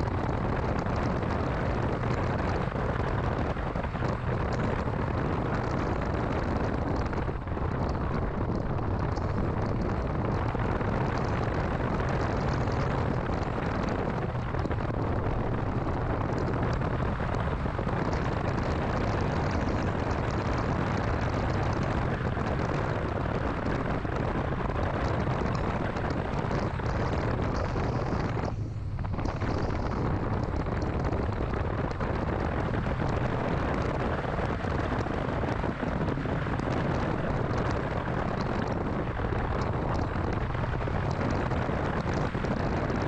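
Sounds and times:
car engine and road noise: 0.0s - 43.0s.

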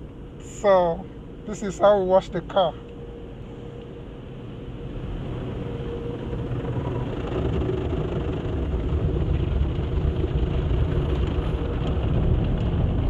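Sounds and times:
car wash machinery rumble: 0.0s - 13.0s
water spraying over car: 4.8s - 13.0s.

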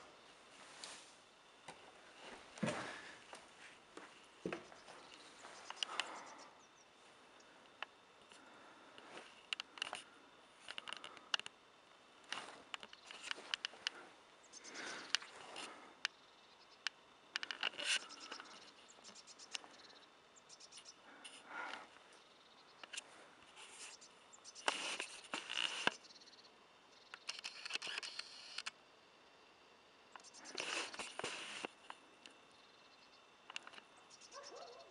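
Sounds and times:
small clicks: 10.6s - 11.6s, 12.3s - 14.0s, 16.8s - 18.6s, 27.1s - 28.8s, 33.5s - 33.9s.

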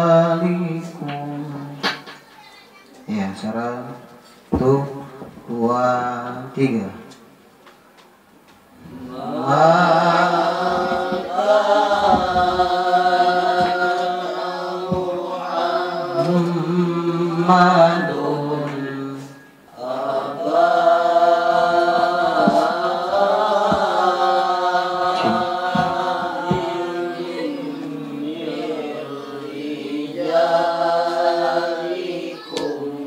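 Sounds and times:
man chanting into a microphone: 3.1s - 7.1s.

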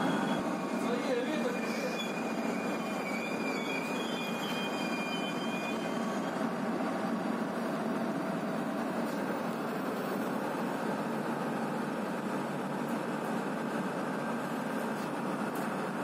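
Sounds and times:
train wheels on rails: 0.0s - 16.0s
diesel generator running: 5.6s - 16.0s.

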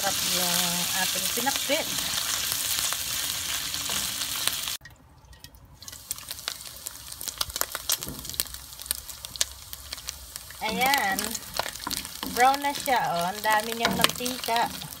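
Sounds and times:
meat sizzling in fat: 0.0s - 4.8s, 5.8s - 15.0s
crackling pops of spattering fat: 5.9s - 15.0s
wooden spoon stirring: 10.5s - 15.0s.

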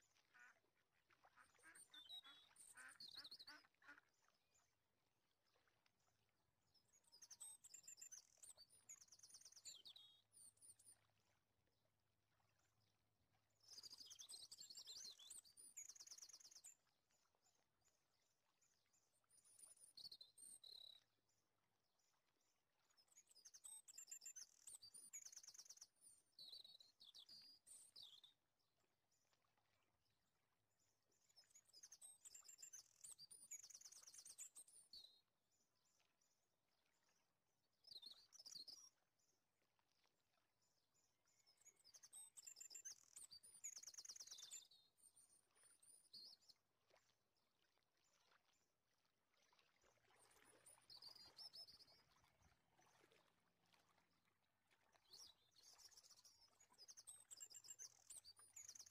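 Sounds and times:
faint birdsong chirps and trills: 0.0s - 58.9s.

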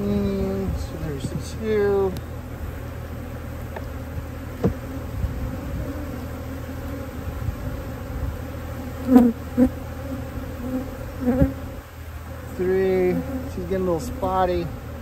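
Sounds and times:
honey bees buzzing: 0.0s - 15.0s
knocks on beehive: 4.6s - 4.8s.

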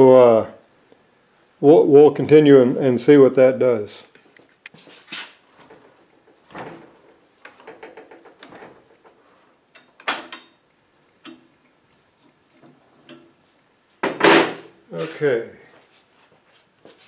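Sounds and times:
light metal rattling: 5.5s - 13.5s.

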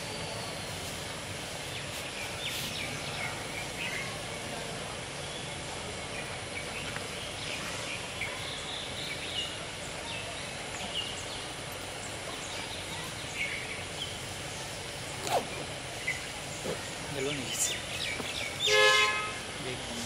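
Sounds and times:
outdoor background noise: 0.0s - 20.0s.

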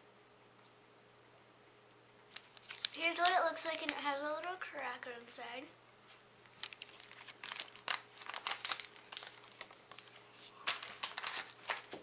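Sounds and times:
foil wrapper crinkling: 2.3s - 4.7s, 6.4s - 12.0s.

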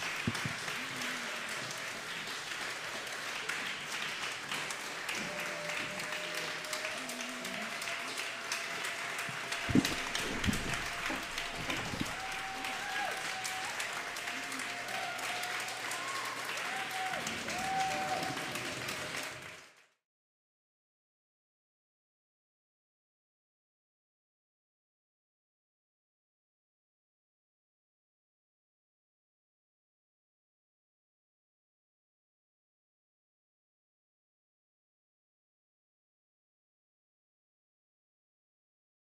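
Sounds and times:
audience applauding: 0.0s - 20.0s
dull thumps: 9.6s - 12.4s.

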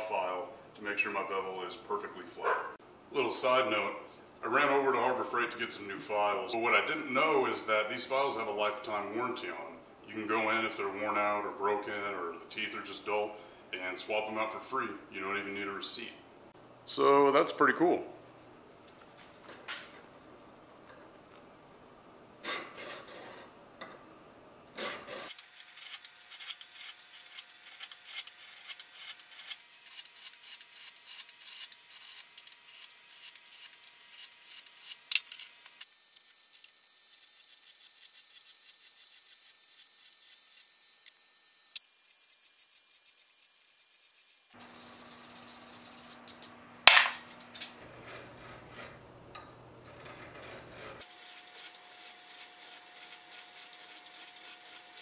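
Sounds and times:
file scraping steel blade: 22.4s - 23.5s, 24.8s - 35.6s, 47.8s - 55.0s.

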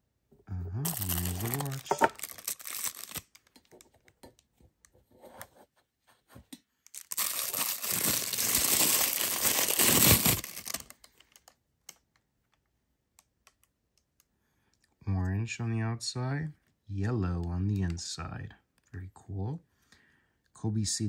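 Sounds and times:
plastic wrapping crinkling: 0.8s - 3.9s, 6.9s - 11.6s
handling rustles and clicks: 1.1s - 5.6s.

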